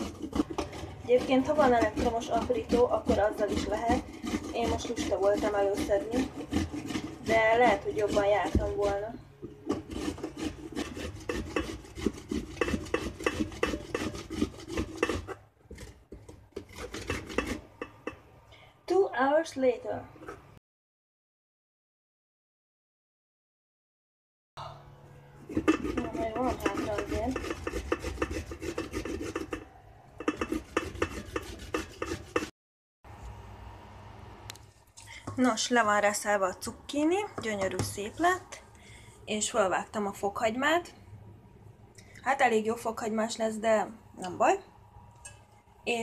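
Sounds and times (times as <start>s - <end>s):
zucchini rasping on box grater: 0.0s - 17.8s, 25.4s - 32.5s.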